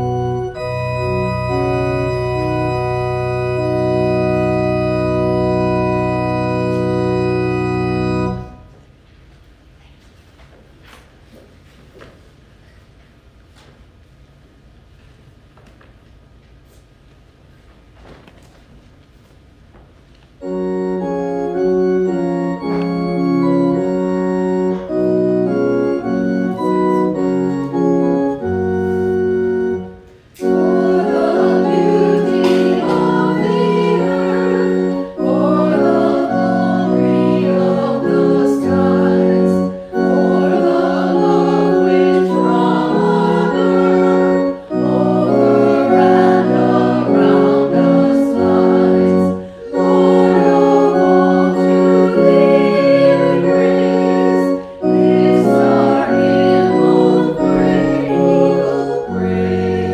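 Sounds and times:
church organ playing hymn chords: 0:00.0 - 0:08.8, 0:20.4 - 0:59.9
women singing a hymn: 0:22.0 - 0:59.9.

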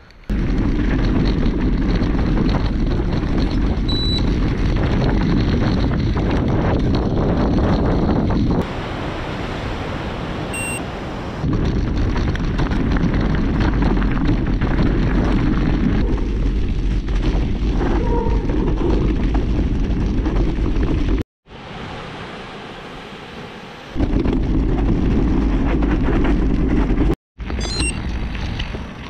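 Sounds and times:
bike knocks and rattles: 0:00.3 - 0:08.6, 0:11.5 - 0:21.2, 0:24.0 - 0:29.0
wind buffeting microphone: 0:00.3 - 0:21.2.

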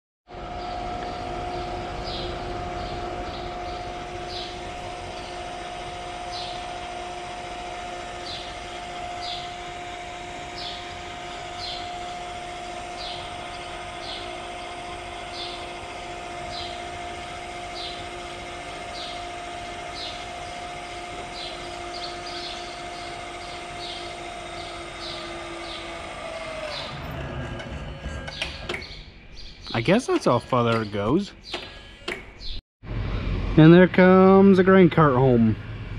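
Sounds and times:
steady machine hum: 0:00.3 - 0:35.9
small birds chirping: 0:00.6 - 0:12.0, 0:12.8 - 0:15.8, 0:16.4 - 0:27.0, 0:28.3 - 0:31.7, 0:32.4 - 0:32.6.

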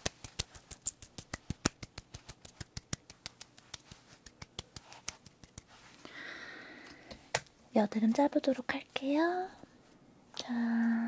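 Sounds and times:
fingertips tapping skin: 0:00.0 - 0:06.0
soft hiss: 0:00.0 - 0:11.0.

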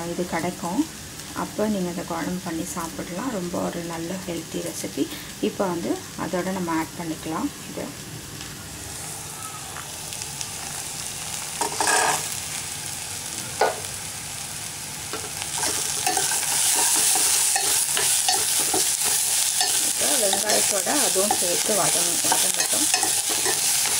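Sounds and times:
peanuts sizzling in hot oil: 0:00.0 - 0:23.9
steel spoon stirring in pan: 0:11.6 - 0:12.3, 0:15.6 - 0:23.9.

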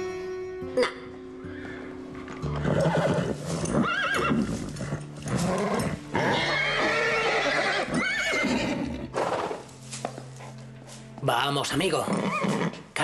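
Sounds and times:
horse whinnying: 0:02.5 - 0:09.6, 0:12.0 - 0:12.8.

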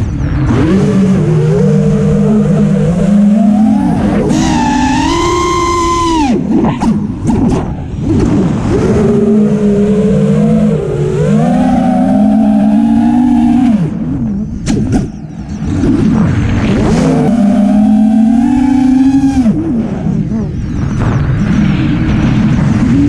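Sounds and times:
quadcopter motors whining: 0:00.0 - 0:06.5, 0:08.6 - 0:15.8, 0:16.9 - 0:20.6.

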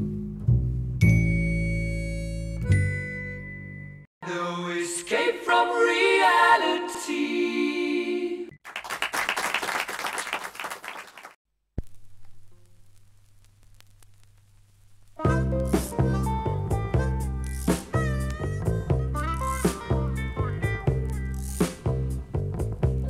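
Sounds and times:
applause: 0:08.6 - 0:11.4
vinyl surface crackle: 0:11.8 - 0:15.8
song playing: 0:15.2 - 0:22.3.

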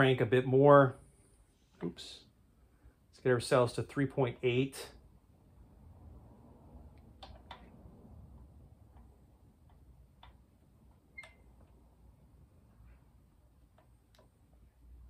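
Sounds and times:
faint clicks and ticks: 0:06.9 - 0:12.0, 0:12.8 - 0:15.0.

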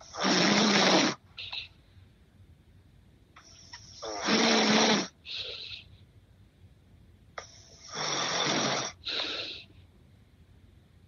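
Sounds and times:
man snoring: 0:00.0 - 0:01.2, 0:04.0 - 0:05.6, 0:07.9 - 0:09.6.

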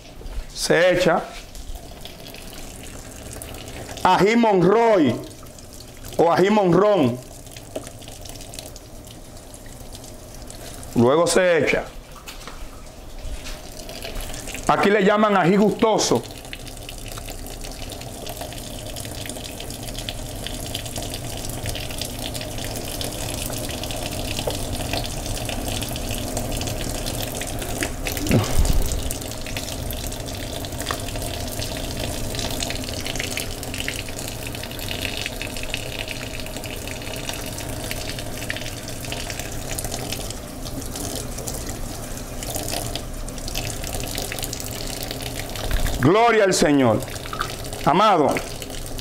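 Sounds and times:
tap running into sink: 0:24.4 - 0:24.7, 0:45.5 - 0:46.1, 0:47.1 - 0:48.6.

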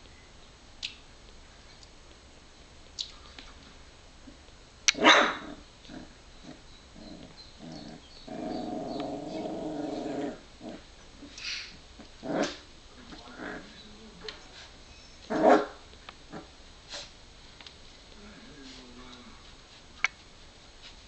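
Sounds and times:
puppy barking and yipping: 0:04.9 - 0:05.6
puppy yelp: 0:05.0 - 0:05.5
puppy growling cry: 0:05.0 - 0:11.3, 0:12.2 - 0:12.6.

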